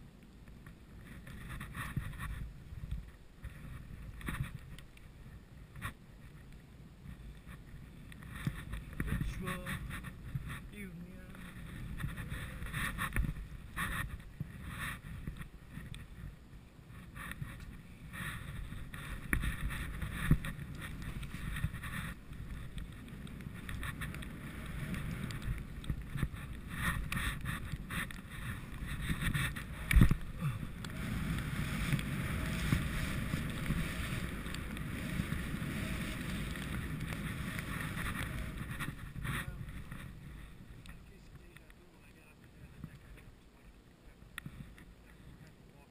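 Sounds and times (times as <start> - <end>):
skis swishing through powder snow: 17.0 - 40.8.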